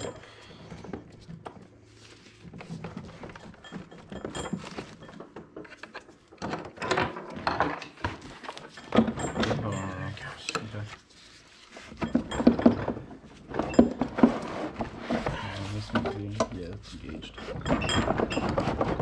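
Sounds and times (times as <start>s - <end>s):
metal gearbox case knocks and scrapes: 12.0s - 16.5s, 17.5s - 19.0s.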